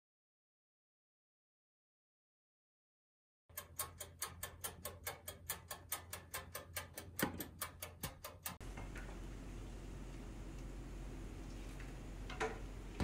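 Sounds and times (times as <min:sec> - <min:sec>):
dial timer ticking: 0:03.5 - 0:08.6
steady low hum: 0:08.6 - 0:13.0.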